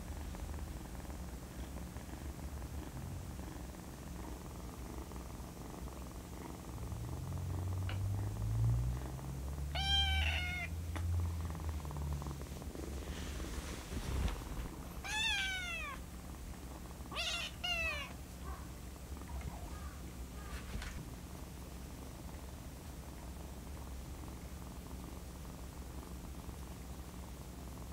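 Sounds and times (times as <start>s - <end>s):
kitten purring: 0.0s - 27.9s
kitten meowing: 9.7s - 10.7s, 15.0s - 16.0s, 17.1s - 18.2s.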